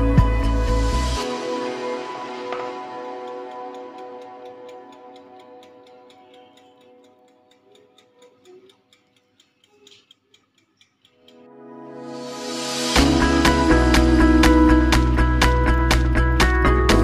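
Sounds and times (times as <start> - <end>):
soft music: 0.0 - 17.0
rapid ticking: 2.1 - 11.5.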